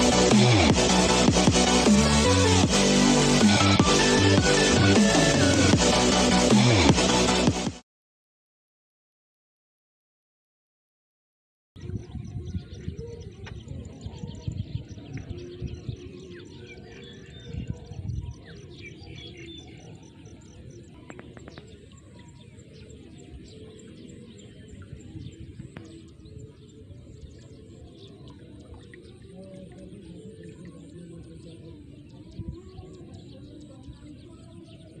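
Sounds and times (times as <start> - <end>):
small birds chirping: 11.8 - 35.0.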